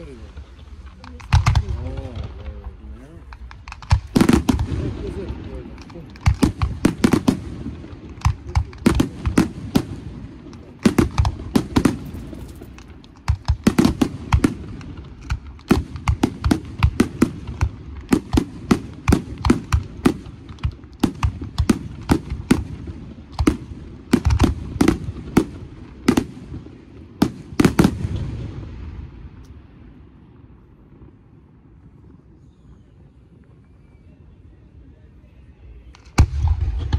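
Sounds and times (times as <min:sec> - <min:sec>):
firework shells bursting: 0:03.2 - 0:22.7.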